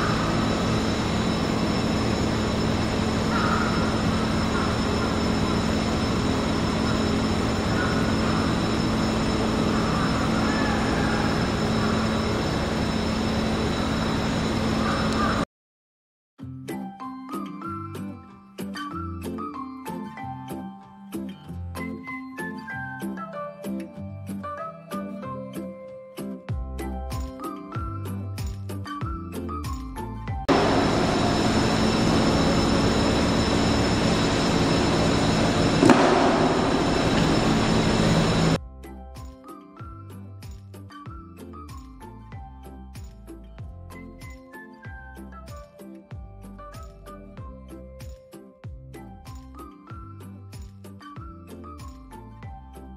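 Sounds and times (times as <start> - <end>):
faint high-pitched whines: 0.0 - 15.4, 30.5 - 38.6
machinery drone: 0.0 - 15.4, 30.5 - 38.6
sharp knock: 35.8 - 37.8.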